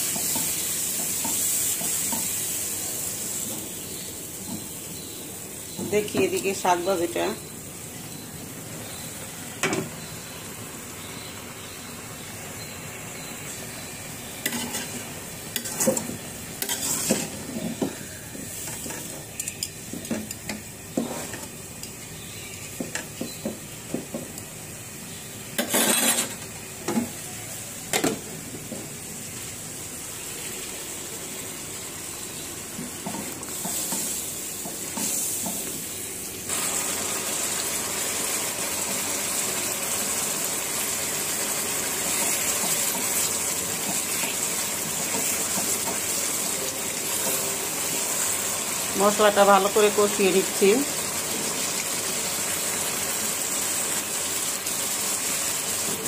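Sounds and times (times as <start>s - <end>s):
greens sizzling in a wok: 0.0s - 56.0s
metal spatula scraping a wok: 14.5s - 17.8s, 25.6s - 26.4s.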